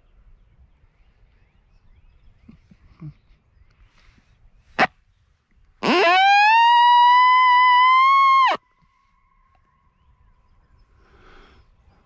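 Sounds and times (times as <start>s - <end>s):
coyote howl: 5.8s - 8.6s.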